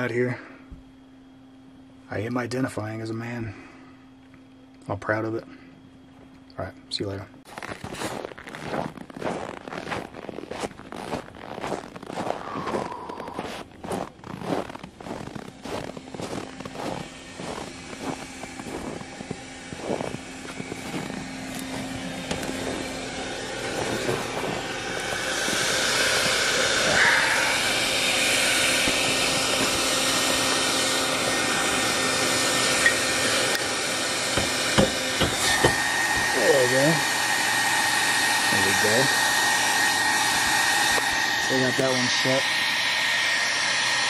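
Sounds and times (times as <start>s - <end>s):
footsteps walking: 7.5s - 26.8s
hair dryer blowing: 10.5s - 44.0s.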